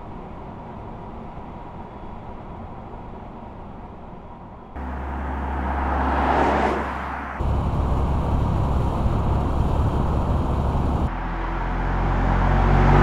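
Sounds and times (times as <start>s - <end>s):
rushing tyre and wind noise: 0.0s - 13.0s
steady low hum: 4.8s - 11.1s
car road noise: 4.8s - 13.0s.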